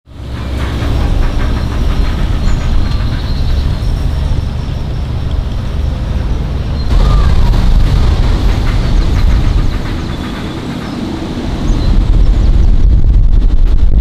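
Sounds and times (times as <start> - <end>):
steam locomotive puffing: 0.2 - 5.2, 6.9 - 12.1
low rumble: 0.3 - 14.0.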